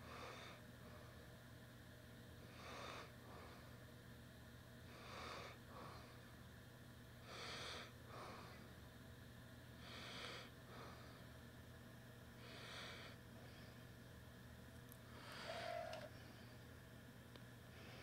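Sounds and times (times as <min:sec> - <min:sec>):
steady low hum: 0:00.0 - 0:18.0
person breathing: 0:12.4 - 0:13.9, 0:15.0 - 0:16.6, 0:17.7 - 0:18.0.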